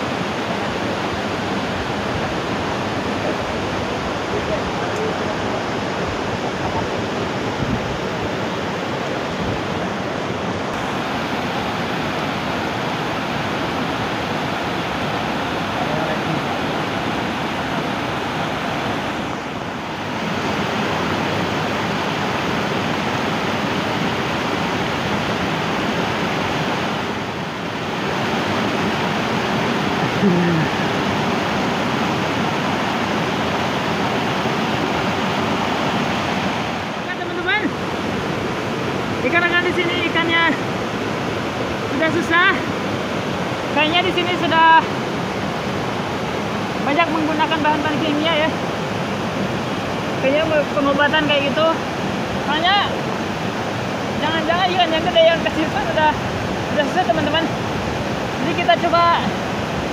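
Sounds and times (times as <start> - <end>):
water rushing over weir: 0.0 - 59.9.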